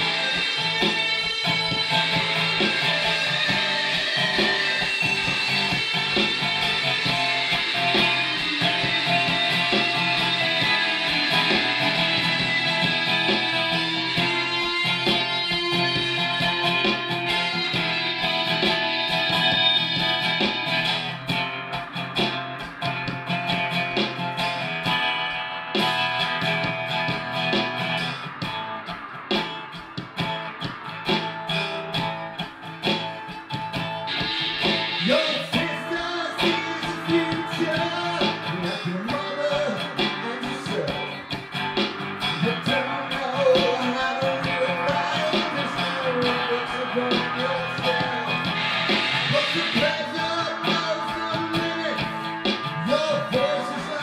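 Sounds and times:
acoustic guitar strumming: 0.0s - 54.0s.

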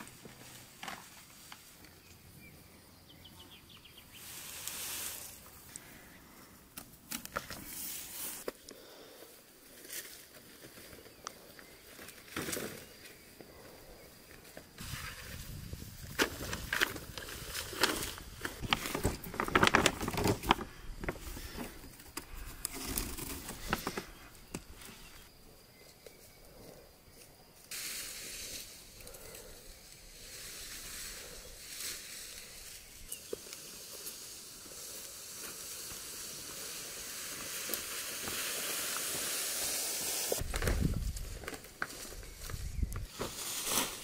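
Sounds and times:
steady hiss: 3.8s - 10.8s, 27.2s - 44.0s
plastic sheeting crinkling: 14.8s - 21.6s.

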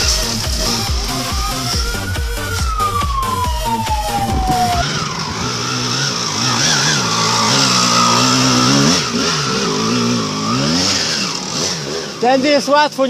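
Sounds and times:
music track with falling tone: 0.0s - 9.2s
dirt bike engine revving: 0.0s - 13.0s.

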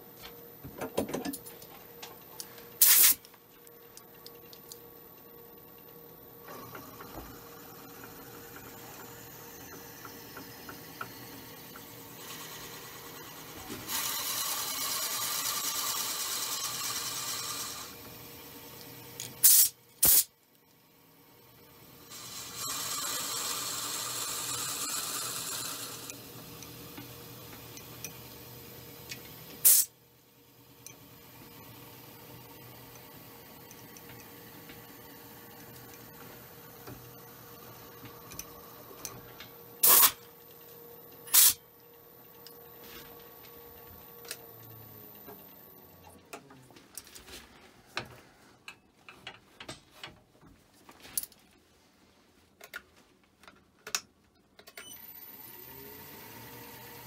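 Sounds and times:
wood lathe running: 12.1s - 18.0s, 22.2s - 26.1s.

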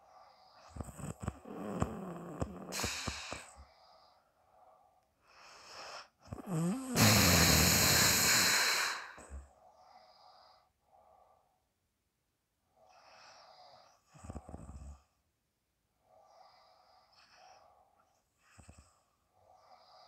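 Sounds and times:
person snoring: 0.6s - 3.6s, 6.3s - 9.4s
loud hissing breath: 2.7s - 3.9s, 6.9s - 9.4s.

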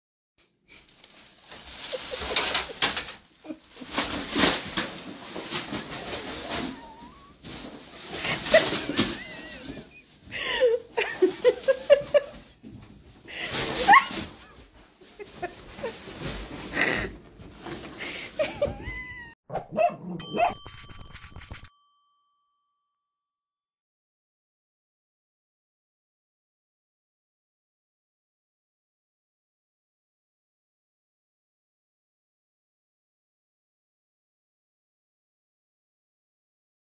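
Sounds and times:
plastic bag crinkling and rustling: 0.7s - 12.6s, 13.4s - 19.2s
bell-like ding: 20.2s - 23.2s.

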